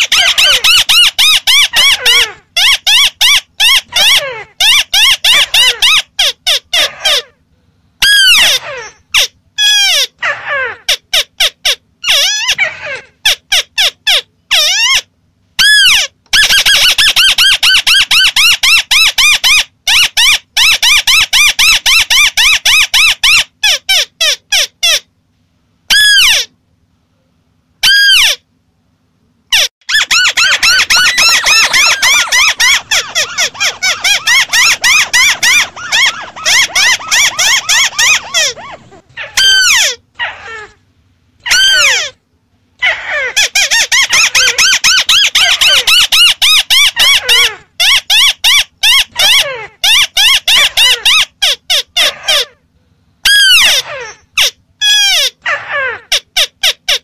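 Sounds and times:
bird chattering calls: 29.6s - 40.7s.

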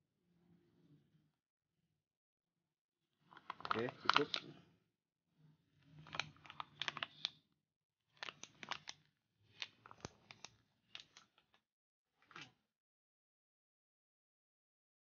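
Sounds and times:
clicking and rustling handling noise: 3.3s - 4.6s, 6.0s - 7.4s, 8.2s - 11.6s.

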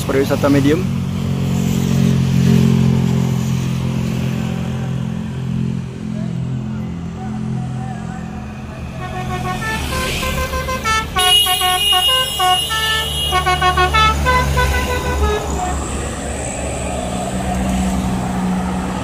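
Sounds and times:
bus engine rumble: 0.0s - 19.0s
musical bus horn tune: 8.9s - 15.9s.

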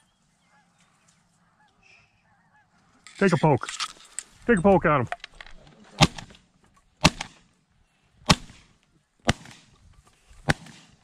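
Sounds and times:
shotgun shots: 6.0s - 6.4s, 7.0s - 7.4s, 8.2s - 9.7s, 10.4s - 11.0s.

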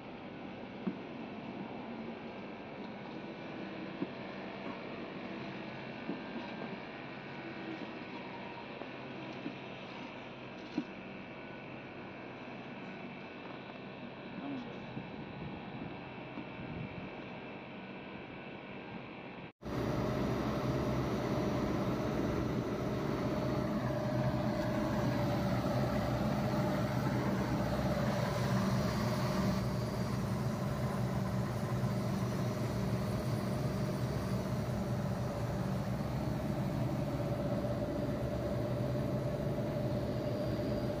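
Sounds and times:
constant whine: 19.4s - 41.0s
air conditioner hum: 19.6s - 41.0s.

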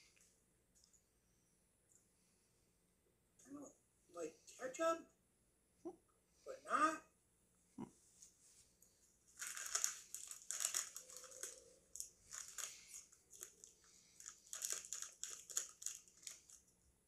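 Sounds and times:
foil snack bag crinkling: 9.3s - 16.7s.

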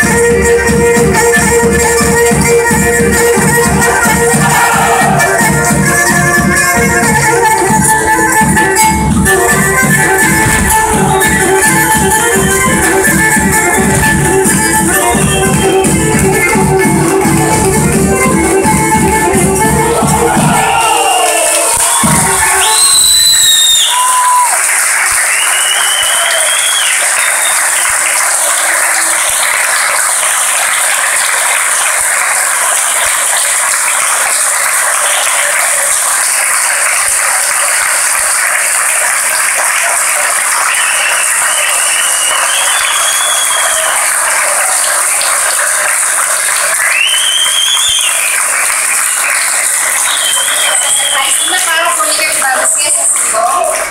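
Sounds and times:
audience applause: 1.0s - 53.9s
high whistles: 20.7s - 24.5s, 25.2s - 27.9s, 40.7s - 44.1s, 46.8s - 48.6s, 49.8s - 51.7s.

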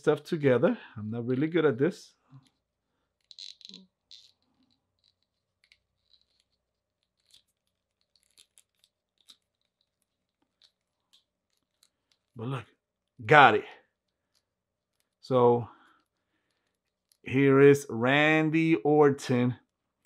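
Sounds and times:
small plastic parts clicking: 2.3s - 12.4s, 14.0s - 17.3s.

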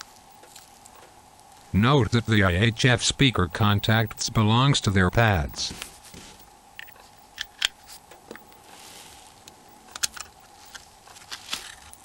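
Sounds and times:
faint steady hum: 0.0s - 12.0s
plastic phone parts clicking: 6.8s - 8.6s, 9.8s - 12.0s.

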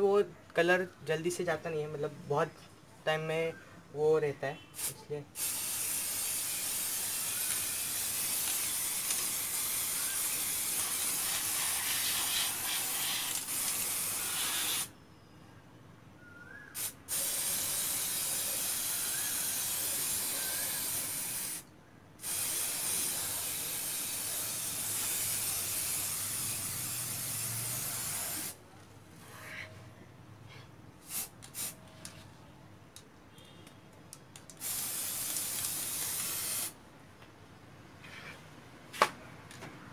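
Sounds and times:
spray paint can hissing: 4.8s - 14.9s, 16.8s - 21.6s, 22.2s - 28.6s, 31.0s - 31.8s, 34.5s - 36.8s.

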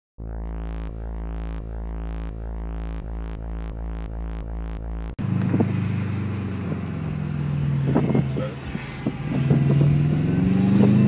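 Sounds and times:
car engine running: 0.2s - 11.0s
music with low drone: 0.2s - 11.0s.

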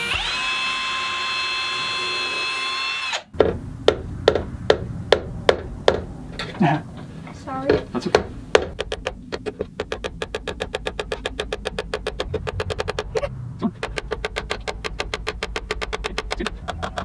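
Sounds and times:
rapid hammer taps on nail: 8.1s - 13.1s, 13.8s - 17.0s.

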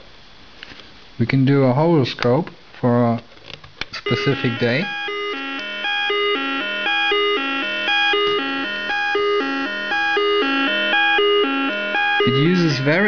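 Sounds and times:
quick electronic beeping tune: 4.1s - 13.0s.

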